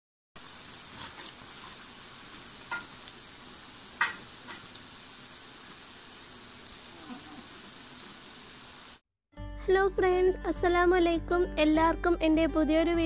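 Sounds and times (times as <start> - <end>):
food deep-frying in oil: 0.4 - 9.0
metal spoon clinking on pan: 2.7 - 2.9, 4.0 - 4.7.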